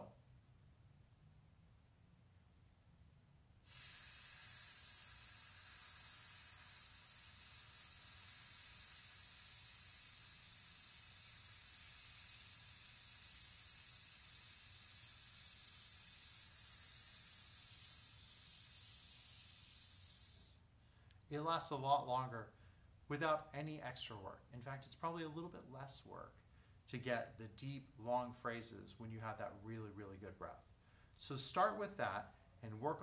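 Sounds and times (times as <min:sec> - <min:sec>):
man hissing on out-breath: 0:03.6 - 0:20.6.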